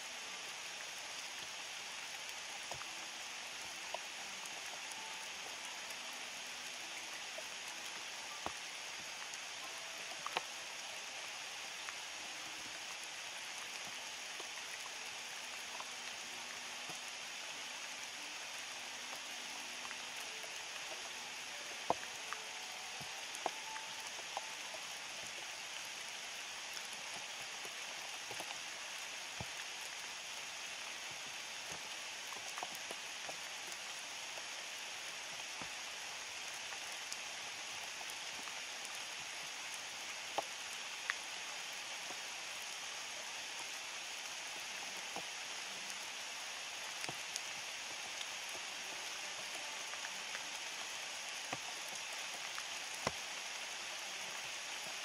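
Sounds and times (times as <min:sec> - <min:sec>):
steady rain falling: 0:00.0 - 0:55.0
raindrop ticks: 0:00.7 - 0:55.0.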